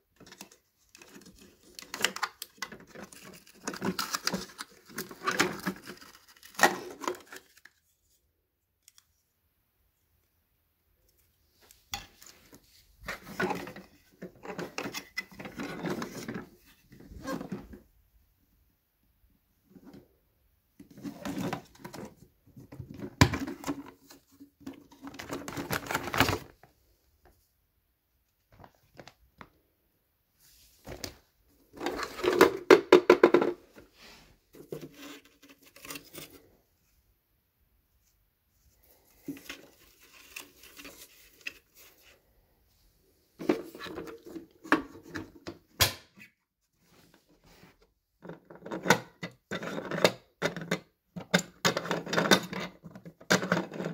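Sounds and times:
plastic clattering and knocking: 20.8 - 26.5, 31.8 - 33.9, 48.2 - 53.9.

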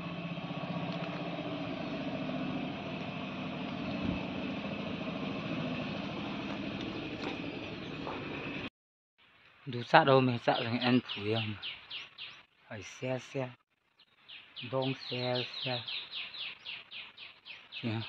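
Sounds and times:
engine idling: 0.0 - 8.7.

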